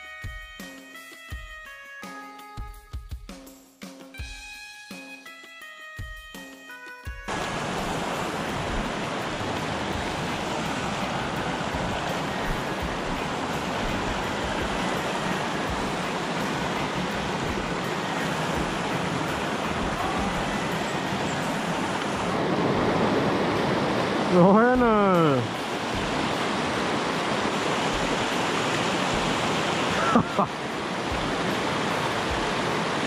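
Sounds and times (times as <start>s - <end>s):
river rushing over rocks: 7.3s - 33.0s.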